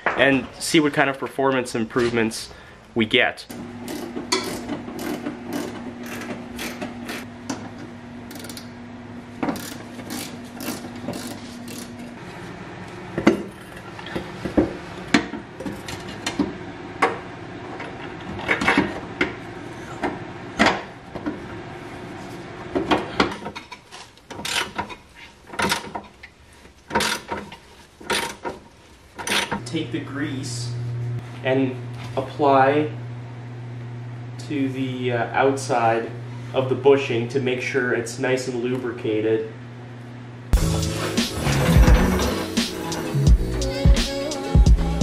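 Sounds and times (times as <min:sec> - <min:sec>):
wrench ratcheting and metal clanks: 0:03.9 - 0:07.3, 0:08.3 - 0:08.7, 0:09.5 - 0:12.0, 0:23.4 - 0:26.1, 0:26.9 - 0:27.5
steady low hum: 0:29.5 - 0:45.0.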